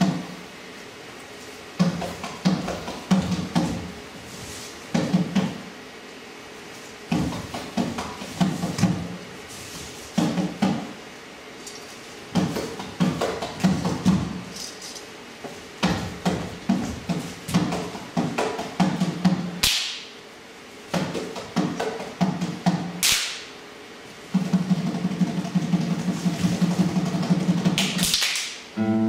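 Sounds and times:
percussive thumps and knocks: 1.8s - 3.9s, 4.9s - 5.6s, 12.3s - 14.3s.

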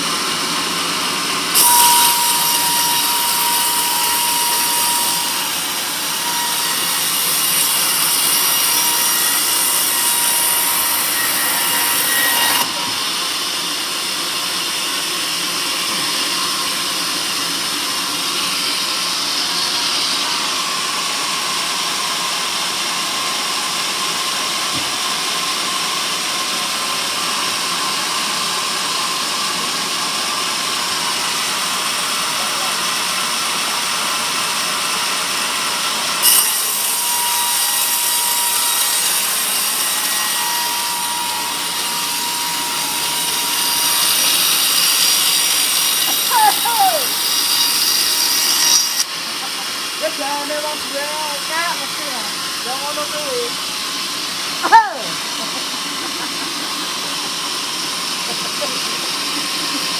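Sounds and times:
band saw cutting wood: 0.0s - 59.9s
thin steady whine: 0.6s - 14.6s.

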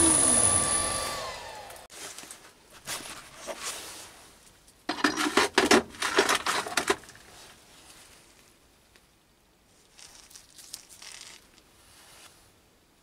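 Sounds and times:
metal clattering and scraping: 4.9s - 7.5s.

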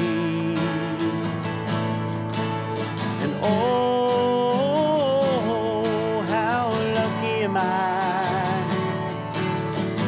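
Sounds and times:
man singing long notes: 0.0s - 1.4s, 3.2s - 8.9s
acoustic guitars strumming: 0.0s - 10.0s.

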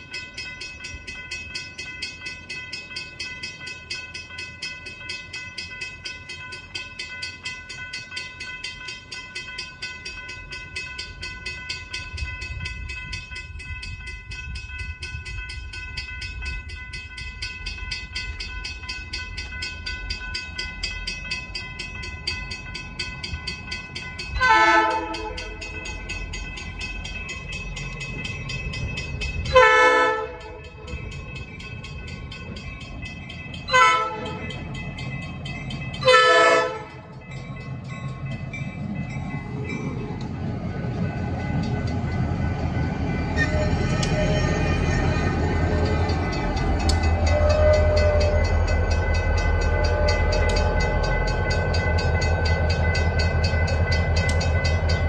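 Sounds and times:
crossing bell ringing: 0.0s - 55.0s
locomotive engine rumble: 21.2s - 55.0s
locomotive air horn: 24.4s - 25.5s, 29.5s - 30.5s, 33.7s - 34.4s, 36.0s - 36.9s, 43.4s - 44.6s, 47.2s - 48.6s.

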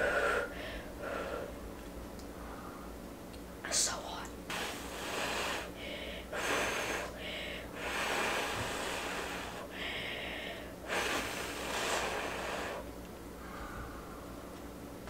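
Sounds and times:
person blowing on soup: 4.5s - 5.8s, 10.8s - 12.8s.

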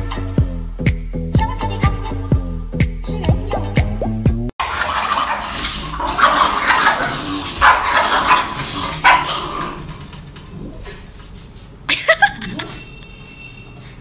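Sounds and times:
small dogs yapping: 6.2s - 10.0s.

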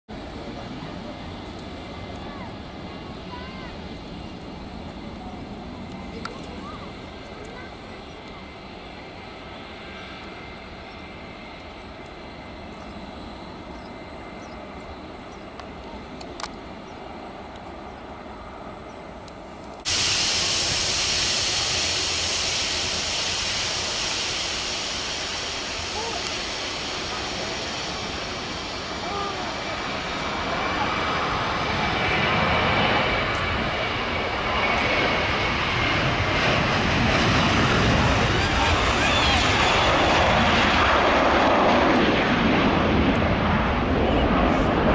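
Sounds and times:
jet engines at low power: 0.1s - 44.9s.

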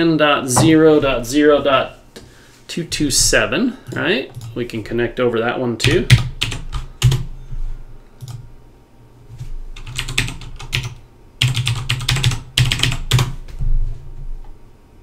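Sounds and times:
typing on computer keyboard: 5.9s - 7.3s, 9.8s - 13.4s.

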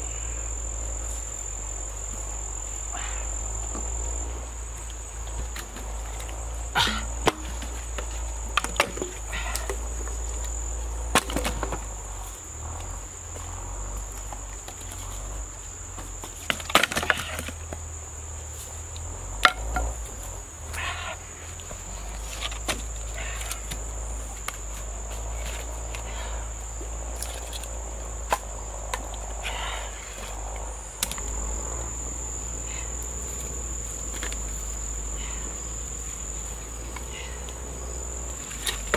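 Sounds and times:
high-pitched insect drone: 0.0s - 11.0s, 17.0s - 38.9s
firewood sticks knocking: 5.3s - 10.5s, 19.4s - 20.0s.

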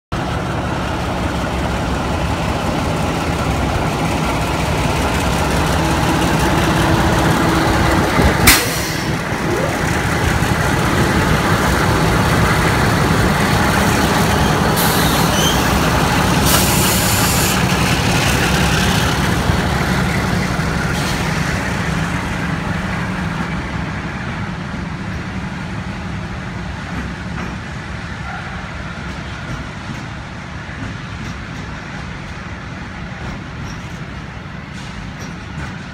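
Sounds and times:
diesel locomotive engines working hard: 0.1s - 35.9s
sharp bang: 8.2s - 9.2s.

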